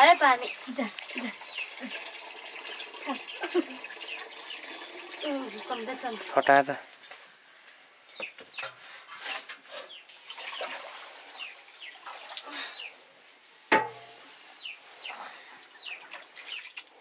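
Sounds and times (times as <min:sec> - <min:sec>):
chickens chirping: 0:00.3 - 0:06.4, 0:11.3 - 0:13.0, 0:14.3 - 0:17.0.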